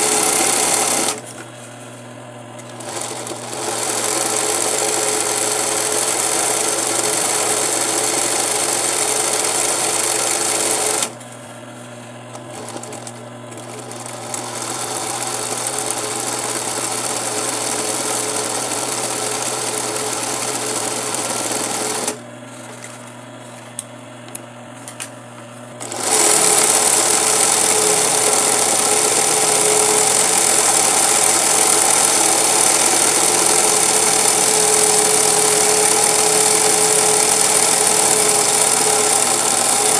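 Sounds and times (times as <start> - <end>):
sewing machine stitching: 0.0 - 1.3, 2.6 - 11.2, 12.4 - 22.9, 25.8 - 39.9.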